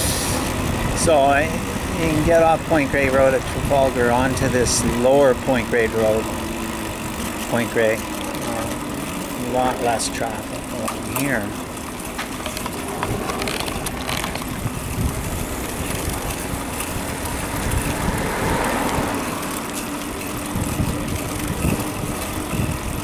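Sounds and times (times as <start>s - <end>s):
wind buffeting microphone: 0.0s - 5.5s, 12.3s - 23.0s
bicycle tyre noise: 0.0s - 23.0s
steady low hum: 0.0s - 23.0s.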